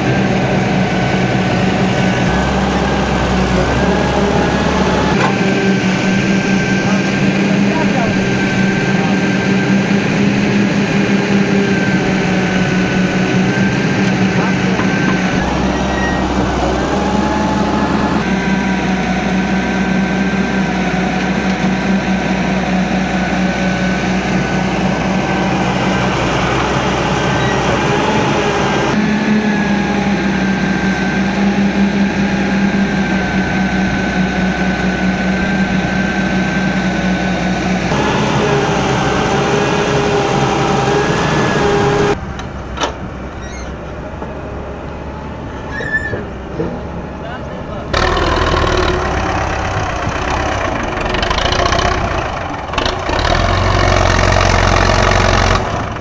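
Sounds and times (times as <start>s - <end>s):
excavator diesel engine whining: 0.0s - 56.0s.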